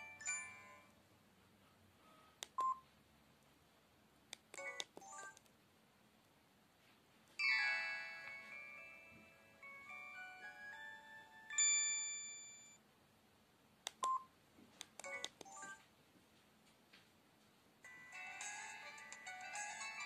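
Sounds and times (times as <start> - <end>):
phone chiming melody: 0.0 - 0.9, 7.4 - 12.8, 17.9 - 20.0
keypad beeps: 2.5 - 2.8, 14.0 - 14.3, 15.0 - 15.8.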